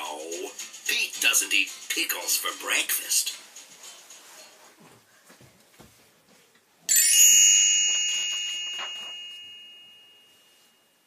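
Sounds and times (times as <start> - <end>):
bright chime ringing: 6.9 - 11.0.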